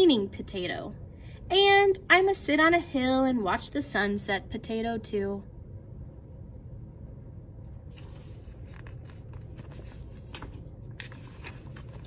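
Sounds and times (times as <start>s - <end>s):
low room hum: 0.0s - 12.0s
paper pages rustling: 7.8s - 12.0s.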